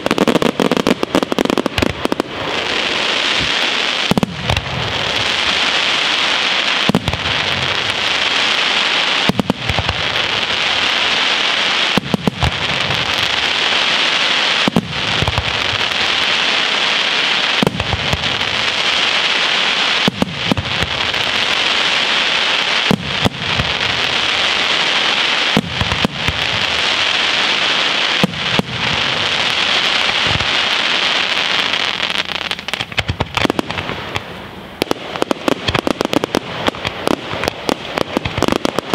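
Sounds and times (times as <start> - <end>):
fireworks crackling: 0.0 - 38.9.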